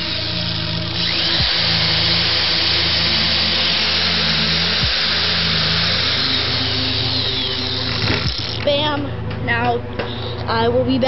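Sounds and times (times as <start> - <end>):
power drill boring into wood: 0.0 - 8.7.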